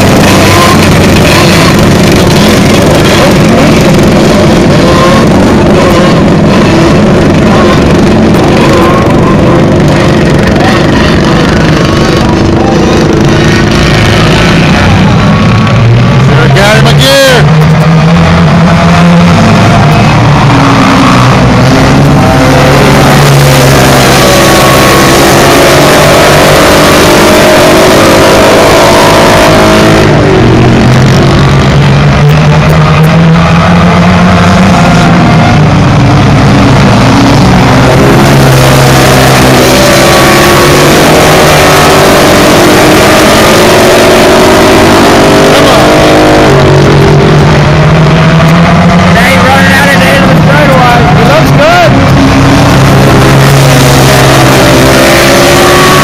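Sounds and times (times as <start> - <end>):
go-kart engines racing: 0.0 - 56.0.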